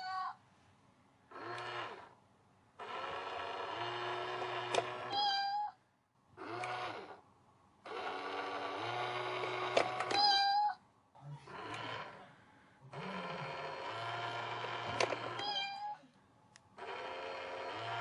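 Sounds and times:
recorded meow from toy: 0:00.0 - 0:00.4, 0:05.0 - 0:05.8, 0:10.0 - 0:10.8, 0:15.3 - 0:16.0
toy motor whirring: 0:01.3 - 0:02.2, 0:02.8 - 0:05.7, 0:06.4 - 0:07.2, 0:07.8 - 0:10.5, 0:11.5 - 0:12.2, 0:12.9 - 0:15.9, 0:16.8 - 0:18.0.

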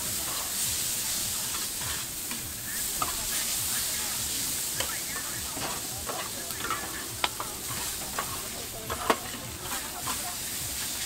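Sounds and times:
noodles sizzling on griddle: 0:00.0 - 0:11.0
metal spatulas scraping: 0:04.8 - 0:11.0.

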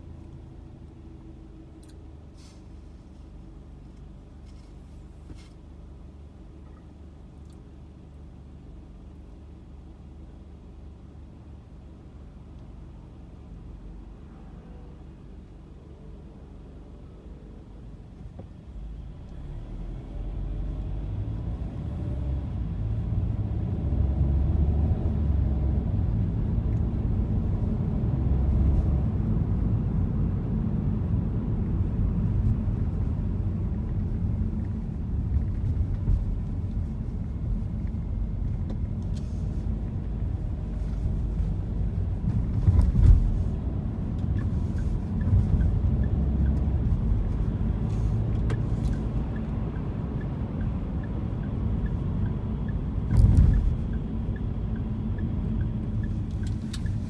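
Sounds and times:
car engine and road rumble: 0:00.0 - 0:57.0
brief thump: 0:53.1 - 0:53.8.

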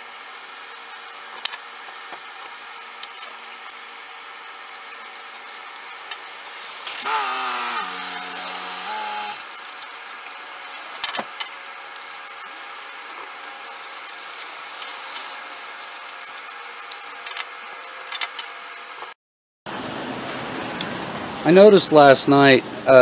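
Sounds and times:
cordless drill running: 0:06.6 - 0:09.5.

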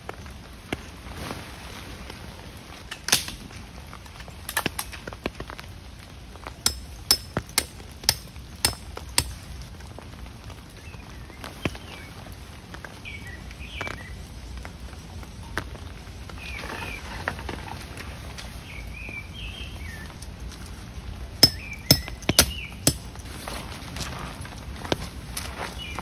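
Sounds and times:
birds chirping: 0:18.6 - 0:20.2, 0:21.4 - 0:23.2.

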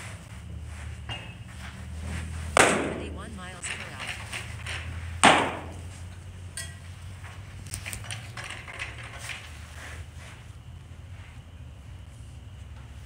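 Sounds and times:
baseball smacking glove: 0:02.5 - 0:03.1, 0:05.2 - 0:05.9.

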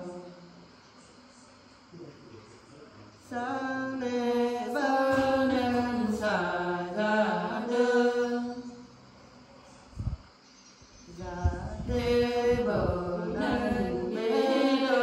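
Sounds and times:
women singing unaccompanied: 0:03.2 - 0:08.9, 0:11.1 - 0:15.0.

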